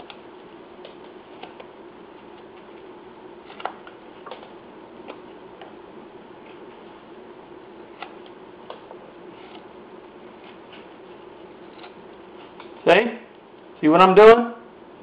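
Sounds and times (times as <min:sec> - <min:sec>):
steady low hum: 0:00.0 - 0:15.0
knife scraping wood: 0:09.3 - 0:09.7, 0:10.3 - 0:12.8.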